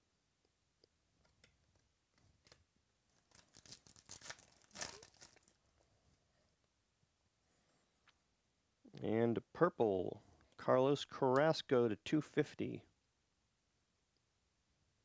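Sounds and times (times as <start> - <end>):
foil wrapper tearing and crinkling: 3.1 - 5.7.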